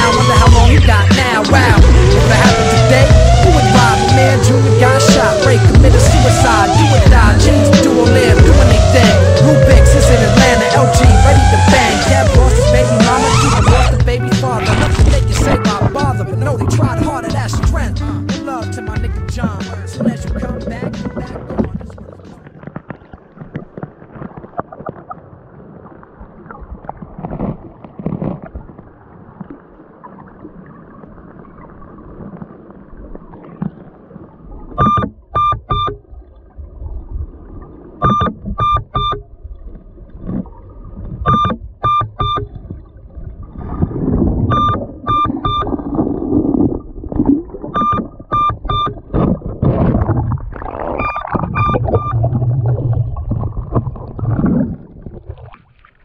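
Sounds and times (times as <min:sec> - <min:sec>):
muffled underwater noise: 0:00.0 - 0:25.2, 0:43.4 - 0:55.5
water gurgling: 0:00.0 - 0:56.0
electronic beeper beeps: 0:34.8 - 0:36.0, 0:38.0 - 0:39.2, 0:41.3 - 0:42.5, 0:44.5 - 0:45.7, 0:47.8 - 0:49.0, 0:51.0 - 0:52.3.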